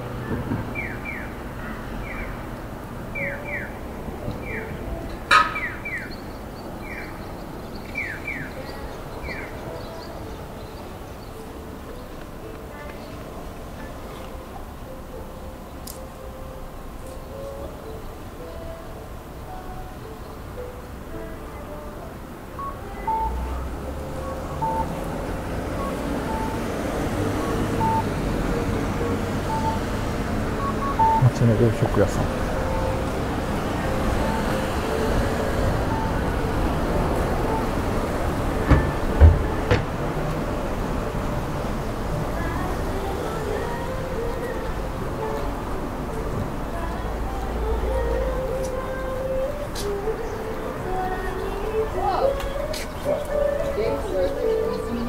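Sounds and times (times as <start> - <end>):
passing vehicle rumble: 0.0 - 55.0
crossing signal two-tone chirps: 24.2 - 25.0, 27.4 - 28.1, 29.4 - 35.2
electronic bird-like crossing chirps: 30.6 - 31.6.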